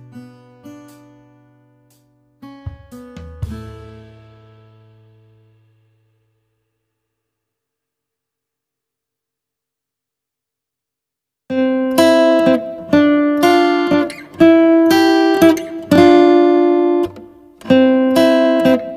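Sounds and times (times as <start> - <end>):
strummed acoustic guitar: 0.0 - 6.5, 11.5 - 18.9.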